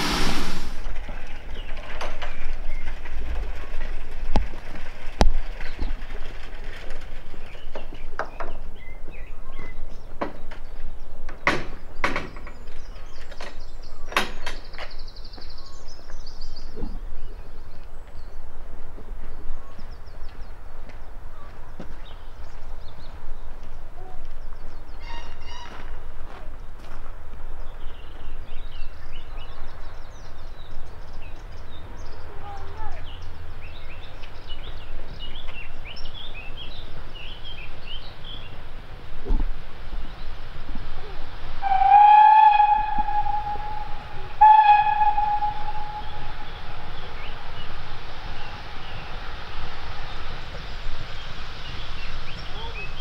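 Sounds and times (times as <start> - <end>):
songbirds chirping: 0.9 - 53.0
low rumble: 27.4 - 53.0
birds chirping and singing: 41.6 - 53.0
bird trill: 41.7 - 49.1
steady low rumble: 42.7 - 53.0.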